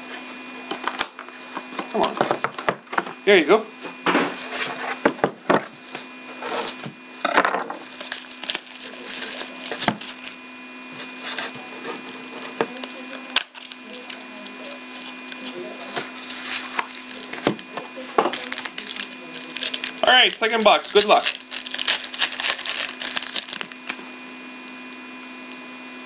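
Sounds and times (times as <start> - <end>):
foil packs crinkling: 5.7 - 24.1
box tearing open: 6.3 - 7.0, 7.8 - 10.4, 15.3 - 17.7, 18.3 - 24.0.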